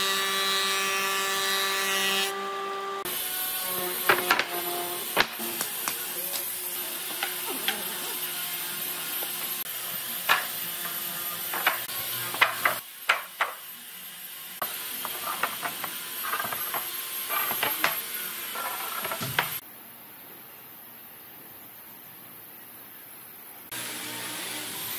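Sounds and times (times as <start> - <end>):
wooden boards knocking: 11.5 - 13.6.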